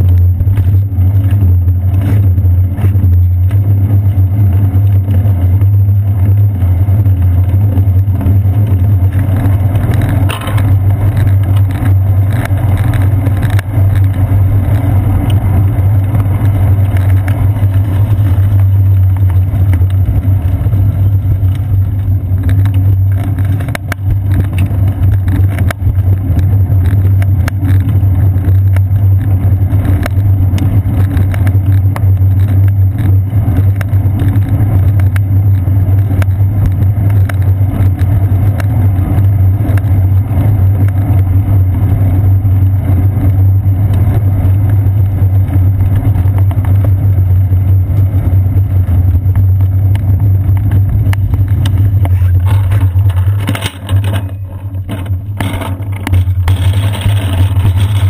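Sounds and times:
road vibration rumble: 0.0s - 58.0s
wind rumble: 0.0s - 58.0s.

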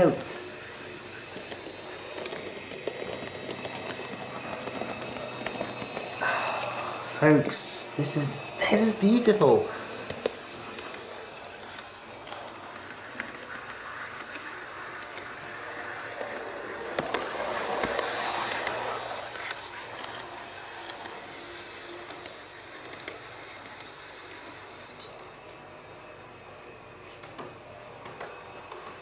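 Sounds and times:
model train motor singing: 0.0s - 29.0s
wheels rolling on track: 0.0s - 29.0s.

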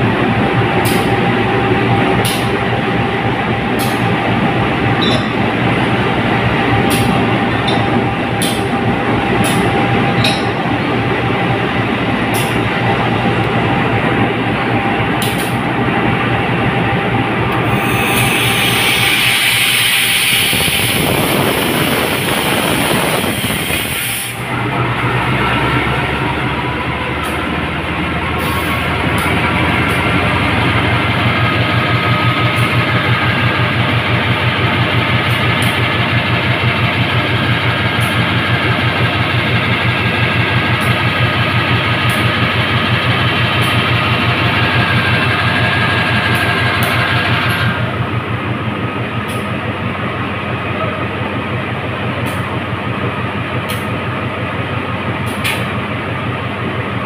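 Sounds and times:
diesel locomotive idling: 0.0s - 57.0s
strong hiss: 18.7s - 24.5s.

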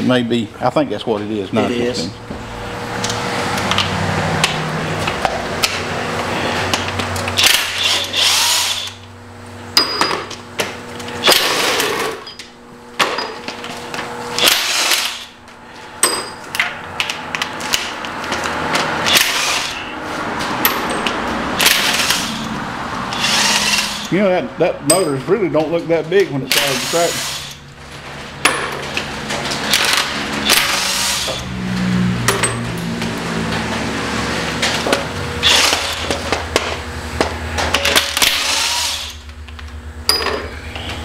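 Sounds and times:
steady hum: 0.0s - 41.0s
pneumatic impact wrench bursts: 7.4s - 9.0s, 11.1s - 12.3s, 14.4s - 16.1s, 19.0s - 20.0s, 21.6s - 24.2s, 26.5s - 27.6s, 29.6s - 31.5s, 35.4s - 36.3s, 37.7s - 39.2s.

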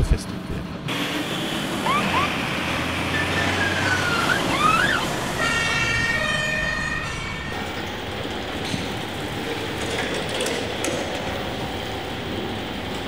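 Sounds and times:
truck engine noise: 0.0s - 13.0s
fire engine siren: 0.9s - 9.3s.

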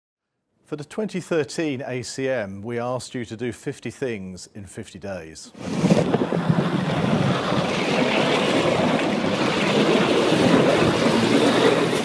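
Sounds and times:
water jets rushing and spraying: 5.6s - 12.0s
wind buffeting microphone: 5.6s - 12.0s.

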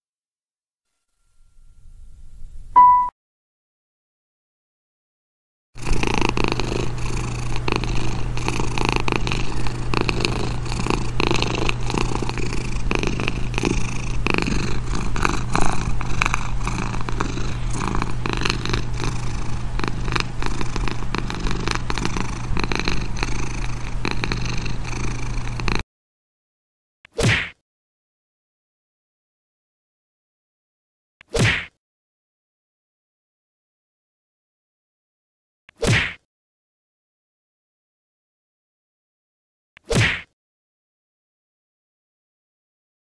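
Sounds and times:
cat purring: 5.8s - 25.8s.

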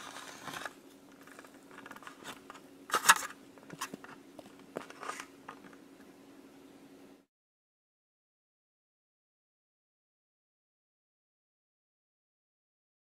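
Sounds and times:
slime squelching and scraping: 0.0s - 4.0s
faint low hum: 0.0s - 7.3s.

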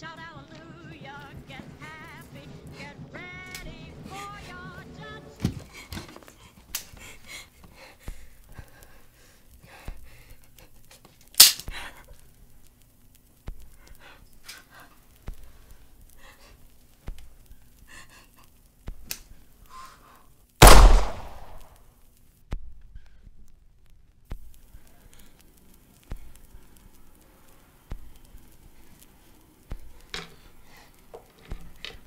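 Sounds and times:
shaky breathing and gasps: 5.4s - 12.4s, 13.6s - 18.6s
short sharp crack: 11.4s - 11.8s, 20.6s - 21.7s
loud revolver shot: 20.6s - 21.7s.

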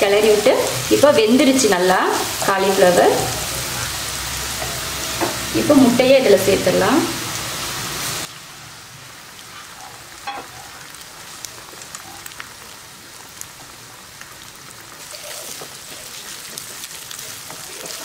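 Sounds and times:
eggs frying in oil: 0.0s - 18.0s
wooden spatula scraping pan: 15.5s - 18.0s.

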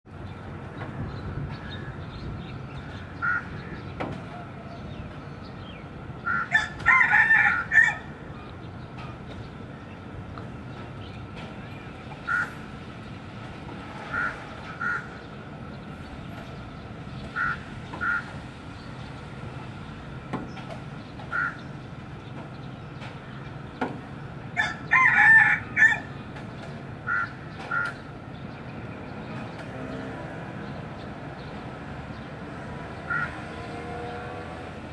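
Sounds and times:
rooster crowing: 6.3s - 8.1s, 24.6s - 26.1s.

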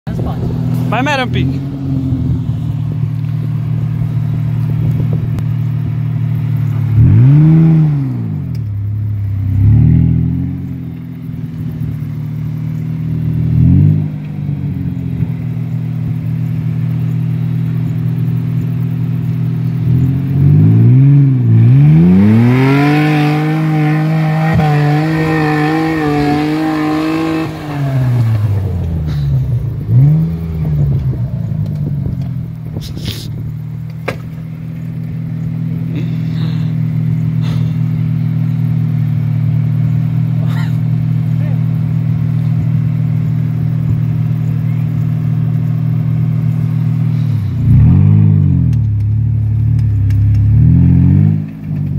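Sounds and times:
engine idling and revving: 0.0s - 51.9s.

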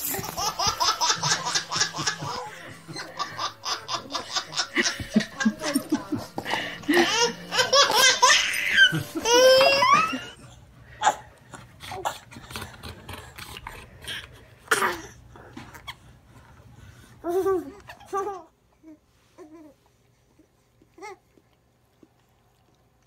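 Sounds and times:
babies laughing and squealing: 0.0s - 11.2s.

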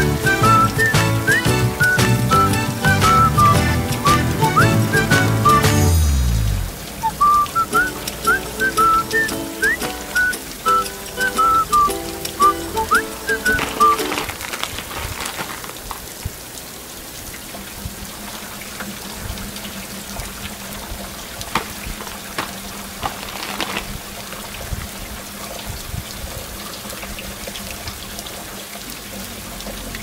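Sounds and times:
rain hissing: 0.0s - 30.0s
plastic packets crinkling: 12.6s - 16.2s, 21.5s - 24.4s.

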